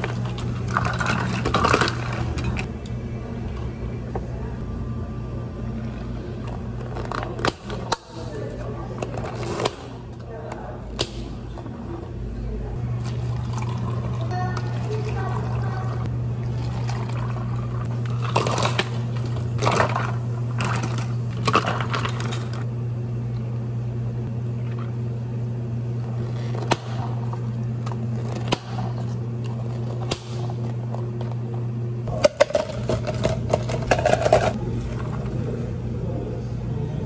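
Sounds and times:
steady low hum: 0.0s - 37.0s
espresso pouring: 12.8s - 22.5s.

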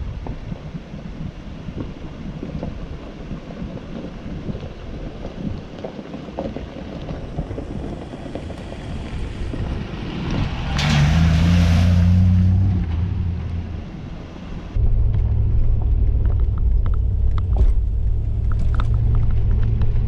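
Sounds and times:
car engine running: 14.8s - 20.0s.

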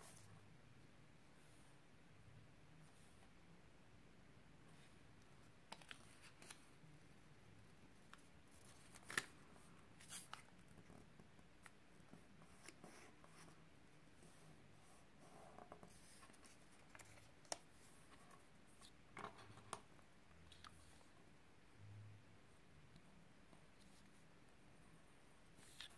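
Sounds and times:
paper rustling and crinkling: 15.8s - 19.8s.

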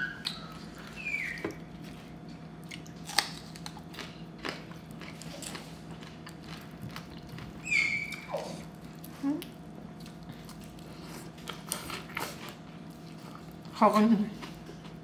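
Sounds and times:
chewing and crunching food: 0.0s - 15.0s.

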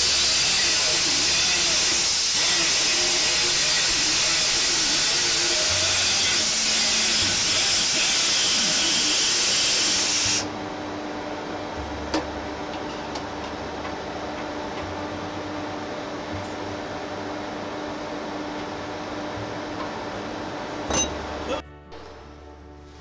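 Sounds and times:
pneumatic grinder grinding steel: 0.0s - 10.5s.

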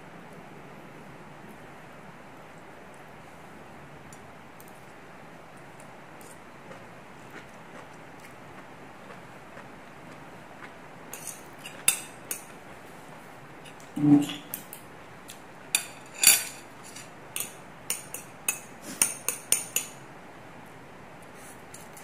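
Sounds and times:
utensils clinking on ceramic bowls: 15.8s - 19.9s.

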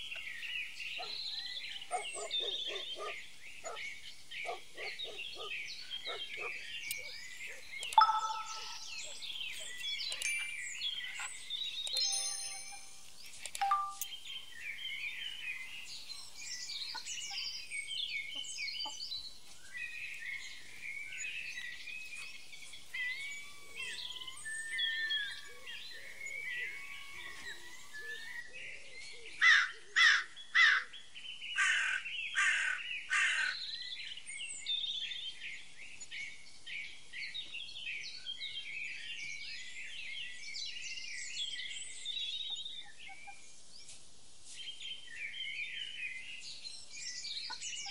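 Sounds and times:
small birds chirping: 0.0s - 47.9s
loud harsh bird calls: 20.6s - 28.4s.

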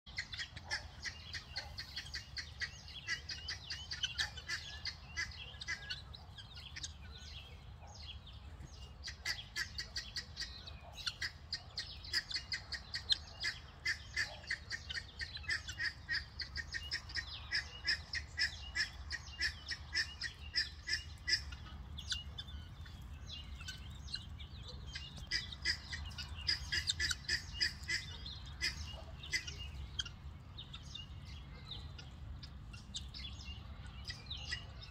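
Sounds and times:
guineafowl calling: 0.1s - 34.9s.

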